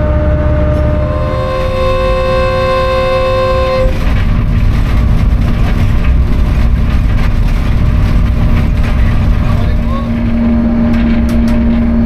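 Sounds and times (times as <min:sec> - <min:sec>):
locomotive horn chord: 0:00.0 - 0:04.3
low engine tone: 0:00.0 - 0:12.0
train rumbling along track: 0:00.0 - 0:12.0.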